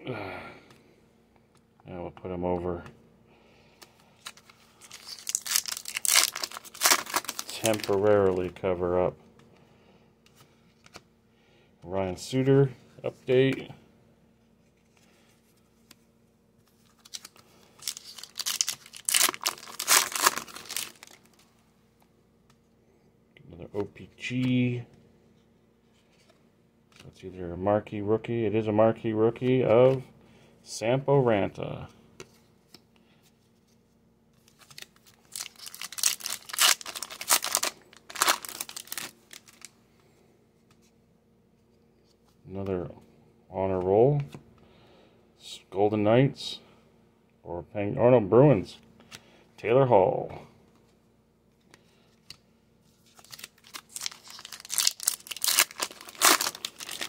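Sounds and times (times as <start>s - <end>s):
foil wrapper crinkling and tearing: 4.2s - 8.4s, 17.0s - 21.3s, 34.5s - 39.7s, 53.1s - 57.0s.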